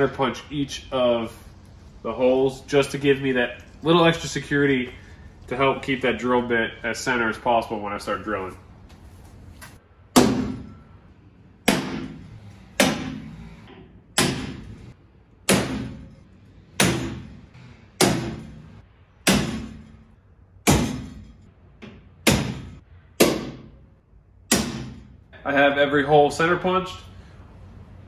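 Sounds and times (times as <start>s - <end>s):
hammer striking metal punch: 10.1s - 10.9s, 11.6s - 14.8s, 15.4s - 16.2s, 16.8s - 23.9s, 24.5s - 25.2s.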